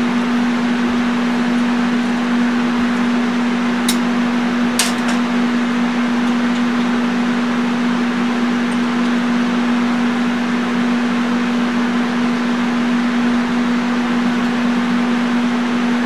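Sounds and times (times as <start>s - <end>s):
welding arc buzzing: 0.0s - 16.0s.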